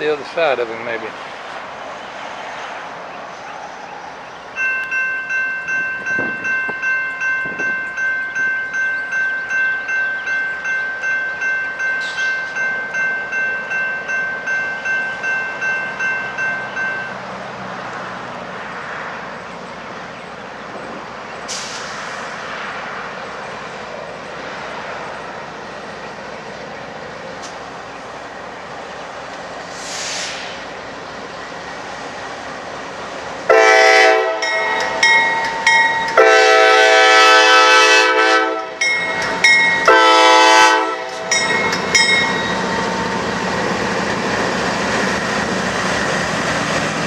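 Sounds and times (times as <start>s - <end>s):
diesel freight train rumbling: 0.0s - 47.0s
crossing bell ringing: 4.5s - 17.4s, 33.5s - 45.6s.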